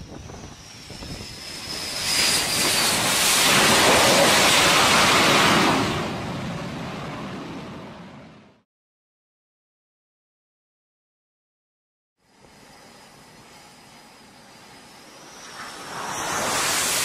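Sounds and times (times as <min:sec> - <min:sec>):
jet engine whine: 0:00.0 - 0:08.6, 0:12.2 - 0:17.0
jet roar: 0:00.0 - 0:08.6, 0:12.3 - 0:17.0.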